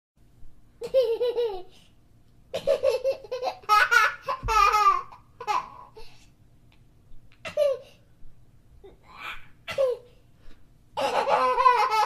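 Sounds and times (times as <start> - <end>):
child laughing: 0.8 - 1.7, 2.6 - 6.0, 11.0 - 12.0.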